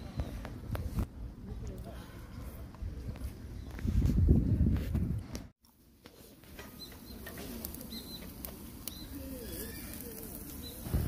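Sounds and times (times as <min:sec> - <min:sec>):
birds calling: 0:06.7 - 0:11.0.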